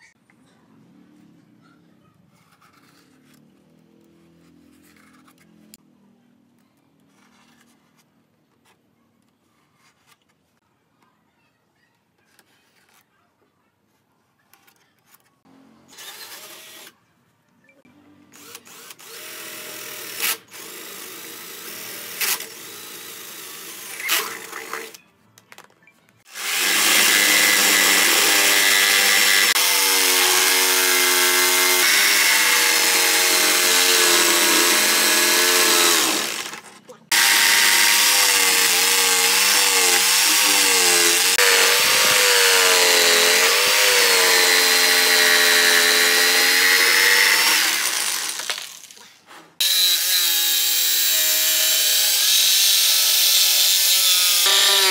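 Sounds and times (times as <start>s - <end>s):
cordless drill running: 18.4s - 24.0s, 26.3s - 48.9s, 49.6s - 54.9s
jigsaw cutting wood: 18.4s - 24.9s, 26.3s - 49.0s, 49.6s - 54.9s.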